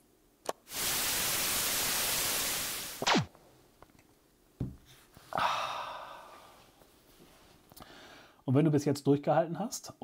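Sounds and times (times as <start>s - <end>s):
television static hissing: 0.5s - 3.3s
quick falling zap: 1.0s - 3.3s
low thump: 4.6s - 4.8s.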